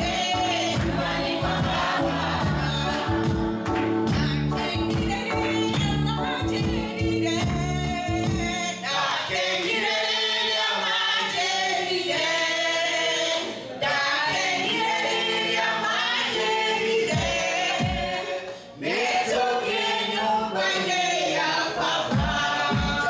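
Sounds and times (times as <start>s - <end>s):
deep beating accompaniment: 0.0s - 8.6s, 17.1s - 18.2s, 22.1s - 23.0s
group of people singing gospel: 0.0s - 23.0s.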